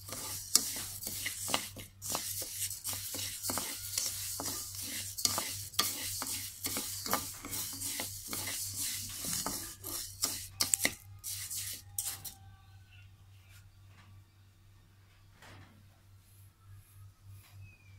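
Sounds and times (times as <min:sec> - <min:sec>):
wooden spatula scraping rice in wok: 0:00.0 - 0:12.4.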